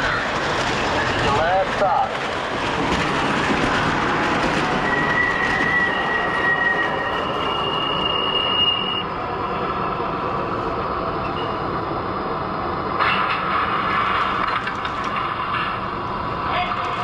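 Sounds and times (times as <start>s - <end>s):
high wheel squeal: 4.8s - 9.1s.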